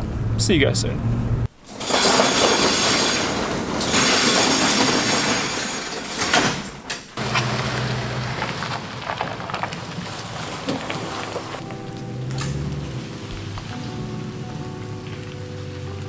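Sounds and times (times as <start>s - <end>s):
steel roll-up door rattling: 1.7s - 11.6s
pickup truck engine running: 7.2s - 16.0s.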